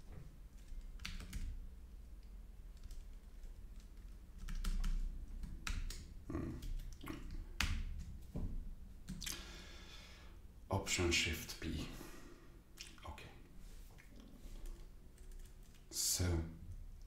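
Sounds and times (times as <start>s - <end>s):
keyboard typing: 0.6s - 1.6s, 2.7s - 7.0s, 14.7s - 15.9s.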